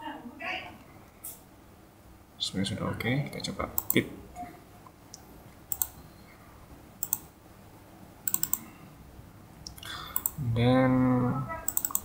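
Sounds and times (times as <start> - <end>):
computer mouse clicking: 3.8 - 4.0, 5.1 - 6.0, 7.0 - 7.3, 8.2 - 8.6, 10.2 - 10.4, 11.7 - 12.0.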